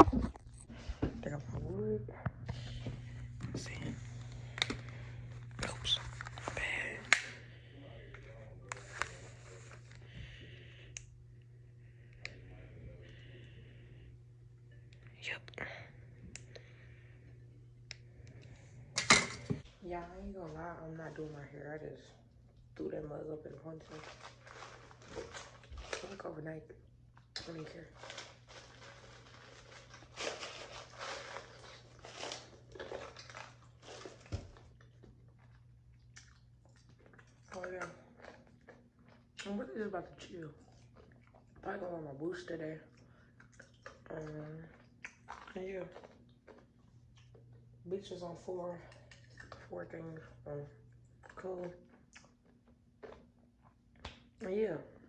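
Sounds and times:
steady low hum: 0.0 - 55.0
person chewing and crunching: 28.0 - 39.6, 40.6 - 41.6, 42.9 - 47.7, 48.9 - 49.7, 50.9 - 54.0.

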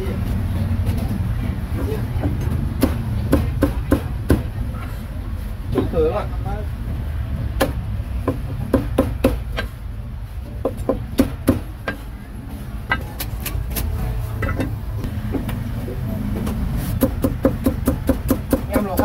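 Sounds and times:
cleaver chopping meat: 17.0 - 19.0.

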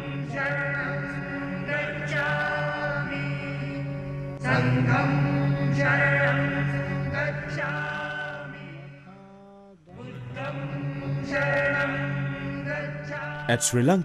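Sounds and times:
men chanting: 13.3 - 14.0.

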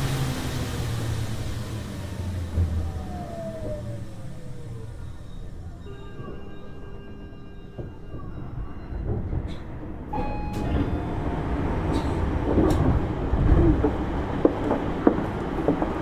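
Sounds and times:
train running rumble: 0.0 - 16.0
wheels clicking over rails: 10.5 - 16.0.

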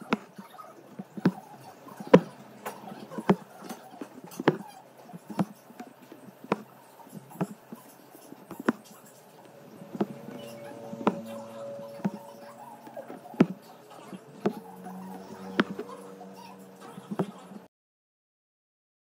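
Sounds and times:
needle tapping through canvas: 3.1 - 4.6, 5.2 - 7.8, 8.4 - 8.8, 14.3 - 15.8.

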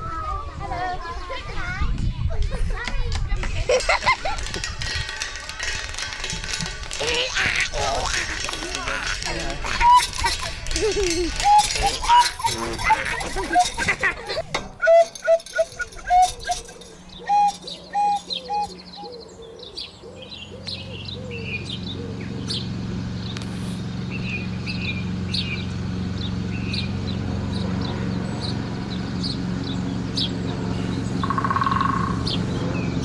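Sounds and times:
birds chirping and singing: 3.7 - 33.0
engine drone: 4.3 - 33.0
short pitched calls: 30.8 - 32.6.

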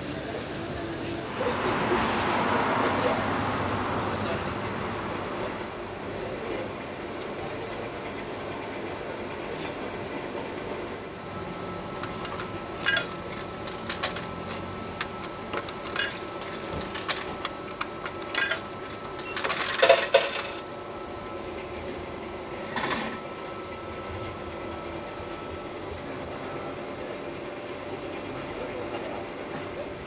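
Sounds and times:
coin mechanism rattle: 12.0 - 14.4, 15.0 - 20.7
coins clinking into coin slot: 12.0 - 14.4, 15.0 - 20.7.

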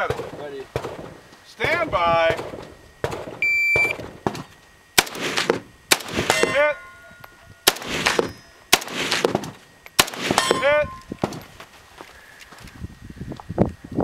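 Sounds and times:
shot timer beep: 3.4 - 4.0
rifle firing single shots: 5.0 - 6.6, 7.7 - 11.4
steel targets ringing: 5.2 - 9.3, 10.0 - 11.2.

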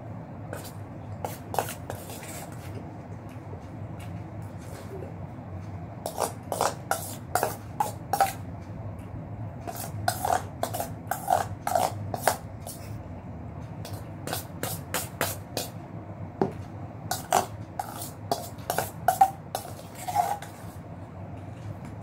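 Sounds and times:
metal spoon scraping steel bowl: 0.6 - 2.7, 6.1 - 8.4, 9.7 - 12.8, 17.1 - 20.8.

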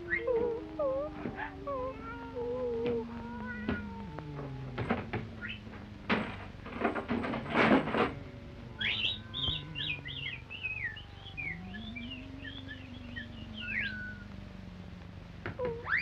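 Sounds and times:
slow sliding low tones: 0.0 - 15.8
high chirping whistles: 8.8 - 14.2.

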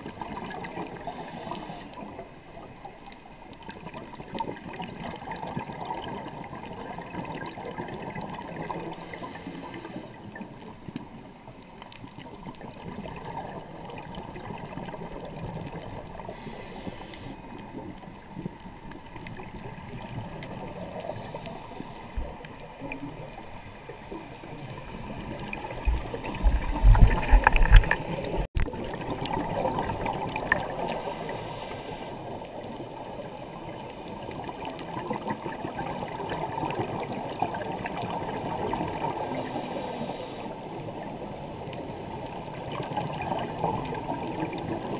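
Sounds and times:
exhaled bubbles burbling: 0.0 - 1.4, 3.6 - 9.3, 24.1 - 31.0, 33.6 - 39.2, 42.5 - 44.9
muffled underwater noise: 0.0 - 44.9
regulator breathing hiss: 1.0 - 2.1, 8.9 - 10.2, 16.3 - 17.5, 21.0 - 22.3, 30.8 - 32.4, 39.2 - 40.7.

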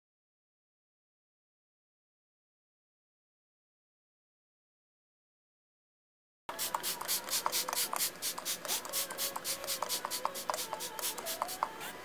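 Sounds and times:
rhythmic scratchy rubbing: 6.5 - 12.0.

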